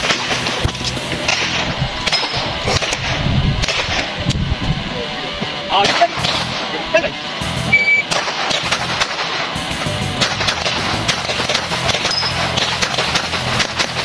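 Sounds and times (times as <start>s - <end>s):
shot timer beep: 7.6s - 8.1s.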